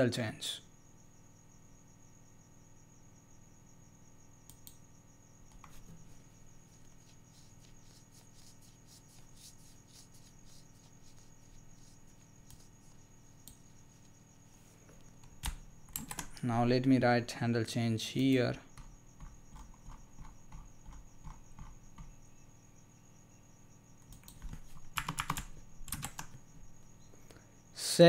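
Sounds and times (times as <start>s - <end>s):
computer mouse clicks: 4.4s - 4.8s, 11.8s - 12.7s, 13.4s - 13.6s, 15.2s - 16.4s, 24.0s - 26.4s.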